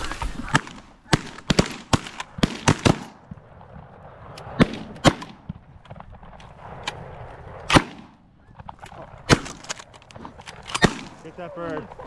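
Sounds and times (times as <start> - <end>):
shotgun blasts: 0.4 - 3.2, 4.5 - 5.6, 7.7 - 8.2, 9.2 - 9.7, 10.7 - 11.3.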